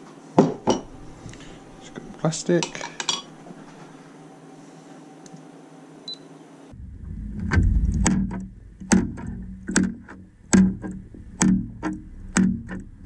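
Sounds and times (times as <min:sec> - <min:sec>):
room tone hiss: 0:00.0 - 0:12.3
steady low hum: 0:00.6 - 0:02.5, 0:06.1 - 0:13.0
deep rumble: 0:06.7 - 0:13.0
sharp clicks or plucks: 0:07.4 - 0:13.0.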